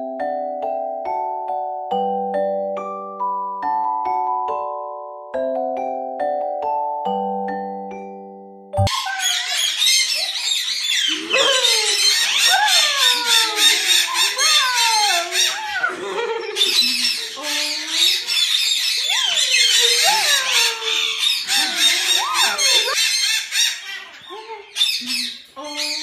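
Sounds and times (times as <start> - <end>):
budgerigars chirping and chattering: 8.9 - 26.0
cockatoo squealing and squawking: 8.9 - 26.0.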